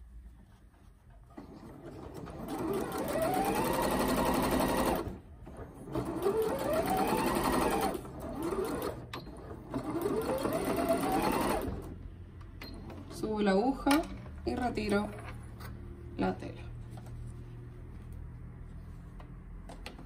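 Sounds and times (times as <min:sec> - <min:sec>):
sewing machine stitching: 0:01.3 - 0:12.0.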